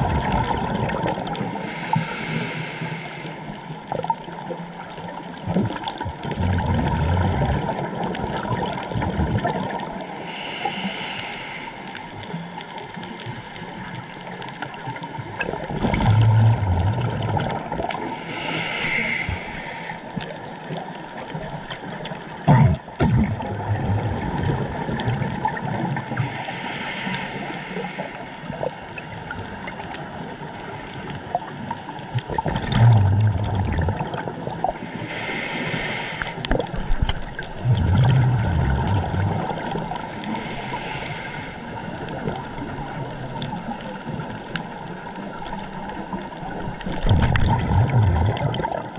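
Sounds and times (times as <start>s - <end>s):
bubbling exhaled air: 0.0s - 4.2s, 5.4s - 11.8s, 15.4s - 20.8s, 22.4s - 29.6s, 32.2s - 44.4s, 46.6s - 48.9s
diver inhaling through regulator: 1.4s - 3.7s, 10.0s - 12.3s, 17.9s - 20.3s, 26.0s - 28.6s, 34.7s - 36.8s, 37.7s - 42.2s.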